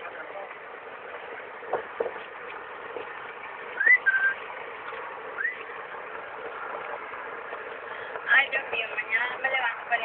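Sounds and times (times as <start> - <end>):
steady background rumble: 0.0 - 10.0
short rising whistles: 3.8 - 4.4, 5.4 - 5.7.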